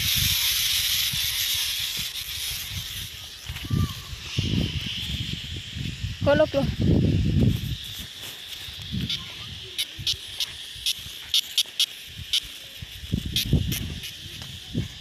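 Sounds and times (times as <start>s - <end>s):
steady high-pitched hiss: 0.0s - 15.0s
sharp ticks: 7.6s - 14.6s.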